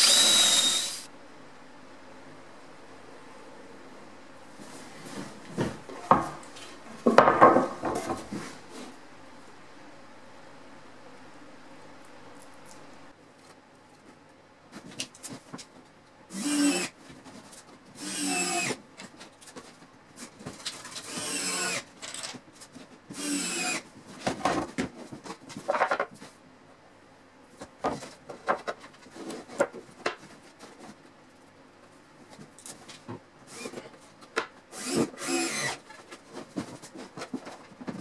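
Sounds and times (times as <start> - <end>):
cordless drill whining: 0.0 - 1.1, 16.3 - 16.9, 18.0 - 18.8, 21.1 - 21.8, 23.2 - 23.8, 34.8 - 35.8
wooden panels knocking and clattering: 7.0 - 8.3.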